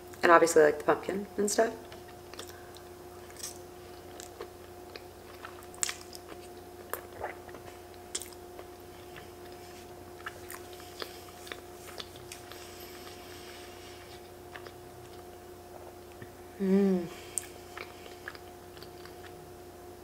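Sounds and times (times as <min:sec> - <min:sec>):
faint steady hum: 0:00.0 - 0:20.0
person chewing: 0:01.8 - 0:16.4, 0:17.1 - 0:19.4.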